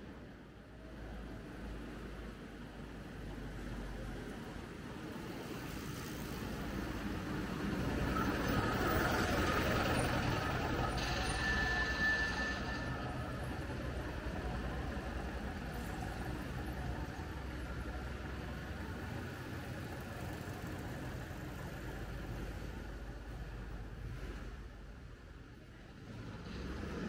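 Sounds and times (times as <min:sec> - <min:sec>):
brief high tone: 0:10.0 - 0:13.6.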